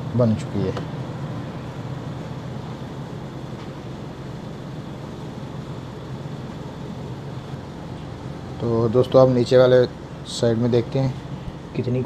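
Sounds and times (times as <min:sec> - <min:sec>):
refrigerator whirring: 0:00.0 - 0:12.0.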